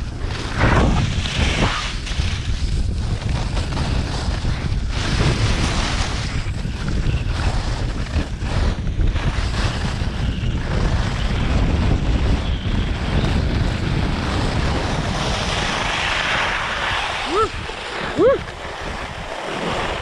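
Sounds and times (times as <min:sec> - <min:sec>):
wind buffeting microphone: 0:00.0 - 0:20.0
skis hissing on snow: 0:13.0 - 0:20.0.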